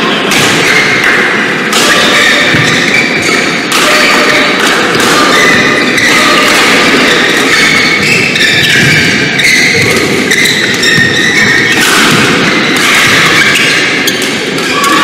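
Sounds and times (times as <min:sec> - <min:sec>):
racket hitting shuttlecock: 0:00.2 - 0:15.0
shoes squeaking on court: 0:04.9 - 0:14.8.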